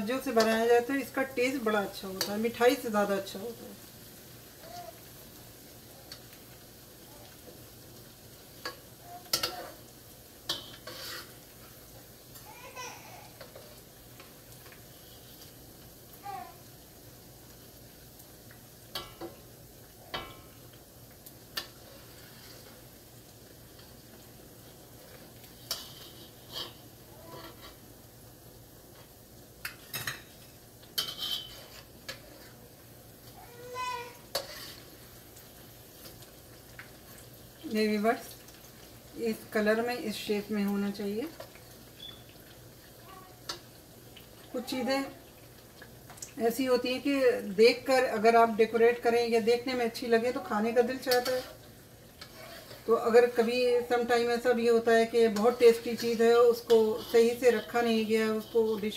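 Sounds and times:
bread sizzling in a pan: 0.0s - 58.9s
spatula scraping a pan: 8.5s - 12.1s, 13.3s - 15.6s, 21.6s - 22.9s, 23.7s - 27.9s, 29.9s - 32.8s, 34.2s - 36.2s, 49.6s - 58.9s.

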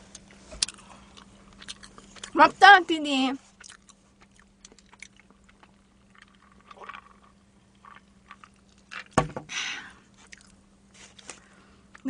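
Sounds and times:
sharp knock: 9.2s - 9.5s.

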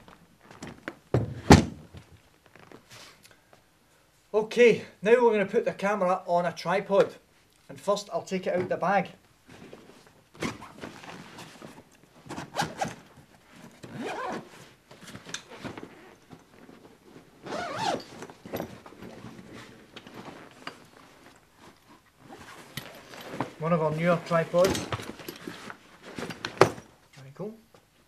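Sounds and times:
bag zipper being pulled open: 13.8s - 14.5s, 17.4s - 18.4s.

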